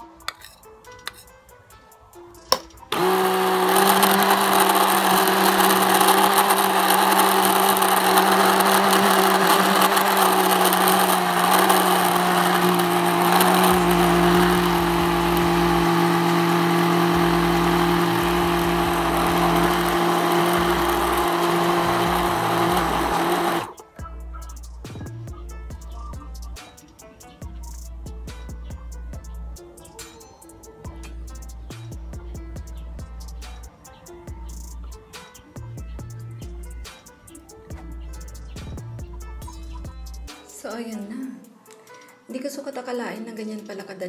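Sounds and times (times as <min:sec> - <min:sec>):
stick blender whirring: 0:02.9 - 0:23.8.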